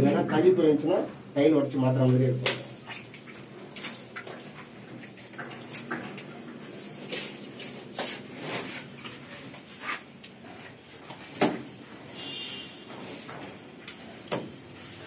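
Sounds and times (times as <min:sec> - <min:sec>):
mortar scrapes and pats: 0:05.6 - 0:11.3.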